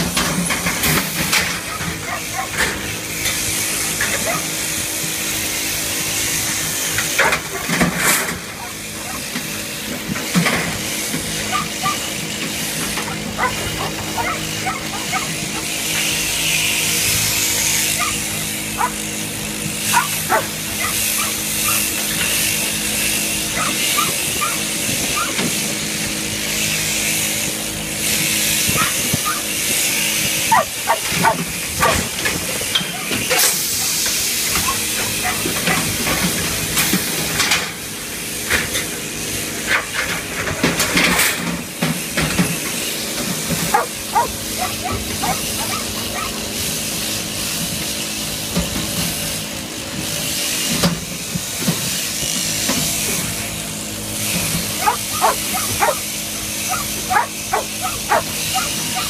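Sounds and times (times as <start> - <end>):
shearing handpiece humming: 0.0 - 59.0.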